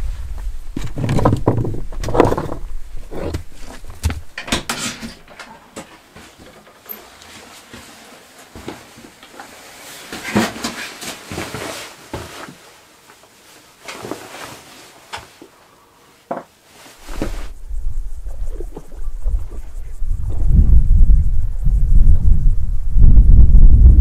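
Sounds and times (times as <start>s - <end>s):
low rumble: 17.0s - 24.0s.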